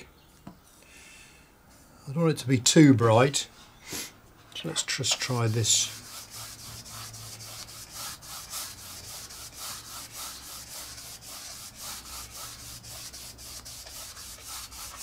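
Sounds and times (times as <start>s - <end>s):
paintbrush scrubbing strokes: 4.9s - 15.0s.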